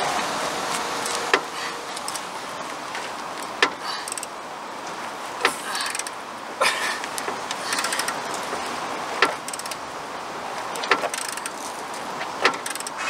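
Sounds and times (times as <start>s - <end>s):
sharp clicks or knocks: 9.2s - 9.8s, 10.8s - 11.6s, 12.4s - 13.0s.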